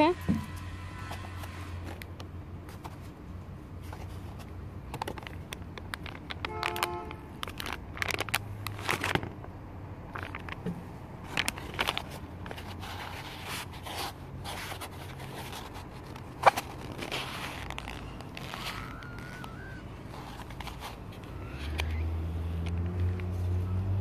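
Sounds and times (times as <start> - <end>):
plastic box crinkling: 3.8 - 9.4, 10.0 - 22.0.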